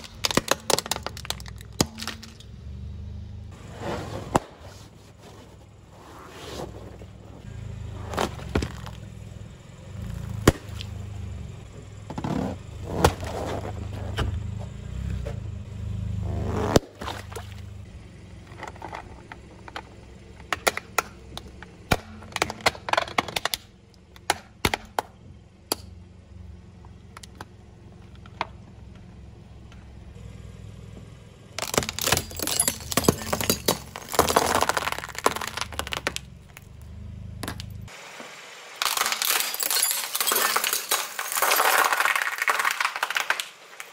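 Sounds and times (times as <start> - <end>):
low tyre rumble: 0.0 - 38.0
glass tubes shattering: 31.6 - 36.2, 38.8 - 43.4.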